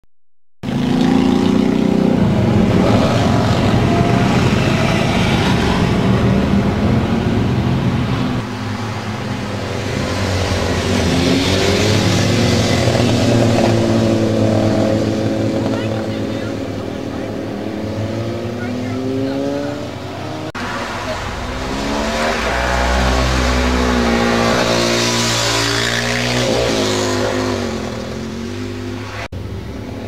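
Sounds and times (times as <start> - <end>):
motorcycles revving past: 0.6 - 30.0
car passing by: 18.3 - 29.3.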